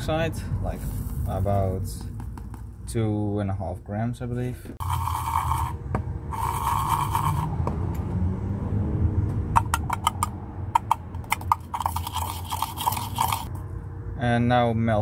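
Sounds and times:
spoon scraping powder: 0:04.8 - 0:07.5, 0:10.8 - 0:13.5.

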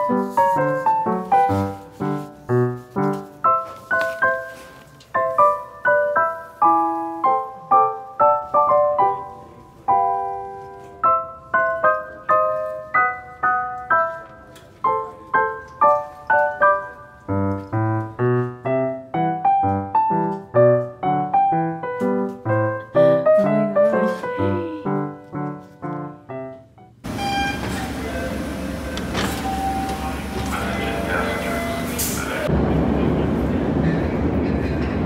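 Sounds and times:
piano music: 0:00.0 - 0:35.0.

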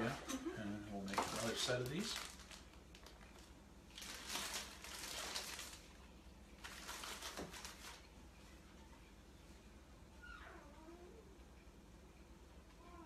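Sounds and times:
plastic bag crinkling: 0:01.0 - 0:08.2.

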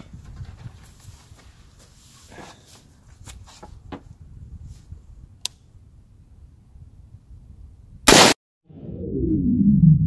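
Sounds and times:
low steady rumble: 0:08.7 - 0:10.0.

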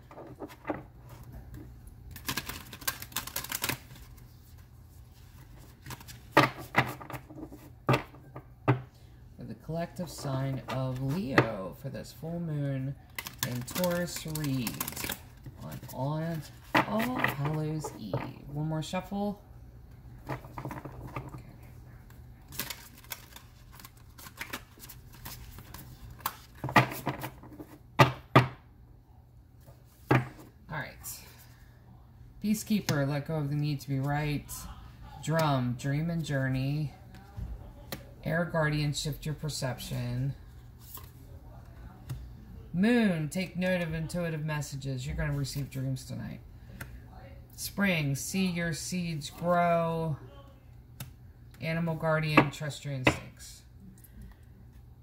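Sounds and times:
cards shuffling: 0:00.1 - 0:08.1, 0:13.1 - 0:18.3, 0:22.5 - 0:27.8.

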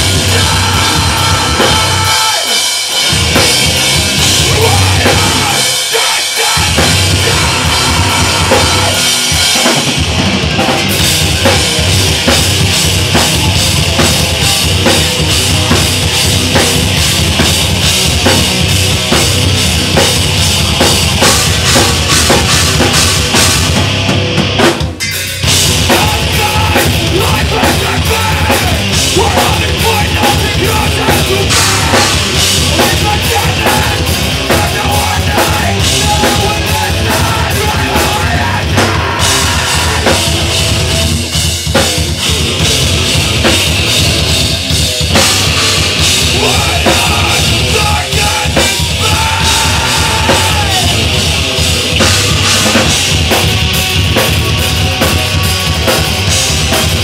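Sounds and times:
distorted electric guitar: 0:00.0 - 0:57.0
drum kit: 0:00.0 - 0:57.0
electric bass: 0:00.0 - 0:57.0.

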